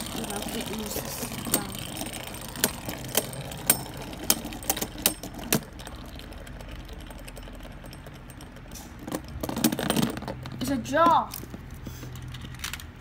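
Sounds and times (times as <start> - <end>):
spinning tops whirring: 0.0 - 12.4
spinning tops clacking: 0.0 - 12.7.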